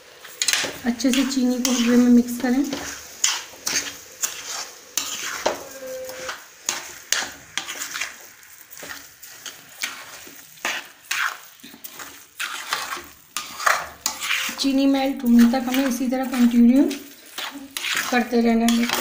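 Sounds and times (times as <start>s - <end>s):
metal spoon scraping pan: 0.2s - 19.0s.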